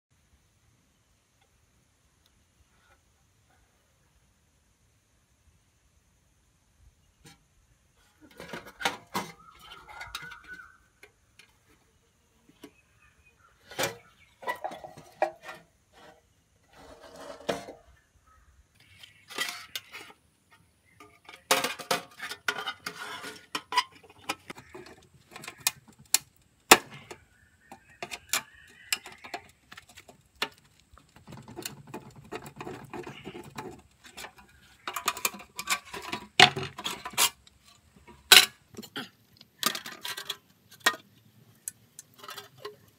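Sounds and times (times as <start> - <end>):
metal box clinking and scraping: 8.2 - 10.8, 13.6 - 17.9, 18.8 - 20.2, 21.0 - 26.0, 28.0 - 41.0.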